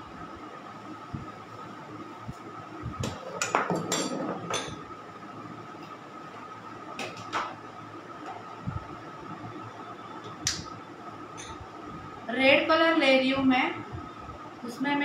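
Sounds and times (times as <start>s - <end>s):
steady hum: 0.0s - 15.0s
kitchen utensils knocking and clinking: 3.4s - 4.8s.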